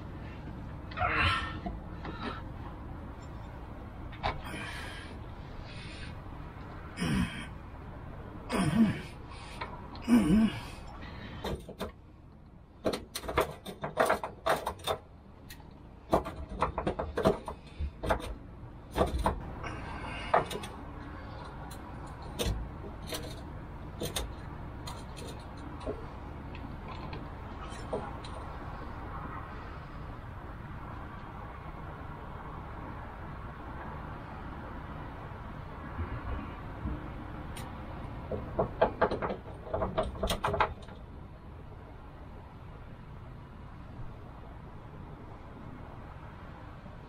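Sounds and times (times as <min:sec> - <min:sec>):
man grunting with effort: 0:00.9 - 0:01.6, 0:07.0 - 0:07.5, 0:08.5 - 0:09.2, 0:10.0 - 0:10.8
rubber part clicking and knocking: 0:16.1 - 0:19.4, 0:37.6 - 0:41.0.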